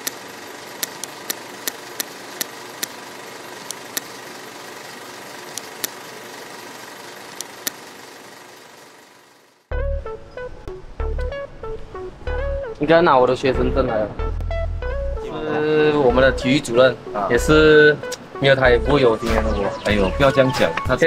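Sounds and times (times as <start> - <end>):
guitar music: 9.7 - 21.0.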